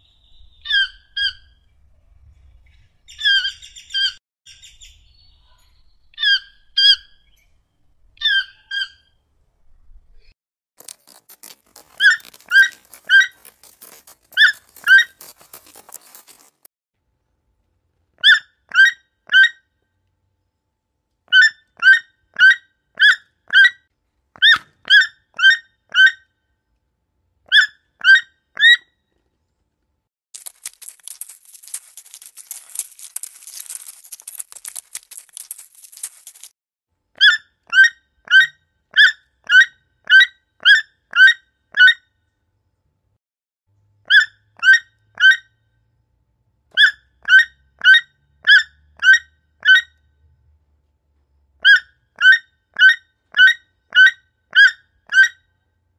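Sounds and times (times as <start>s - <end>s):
toucan squeaky yelps: 0.6s - 1.6s, 6.2s - 7.1s, 8.2s - 9.2s, 11.8s - 15.3s, 18.2s - 19.6s, 21.3s - 23.8s, 24.4s - 26.2s, 27.5s - 28.8s, 37.2s - 42.0s, 44.1s - 45.5s, 46.8s - 50.0s, 51.6s - 55.4s
crackling rustle: 10.8s - 16.7s, 30.4s - 36.6s.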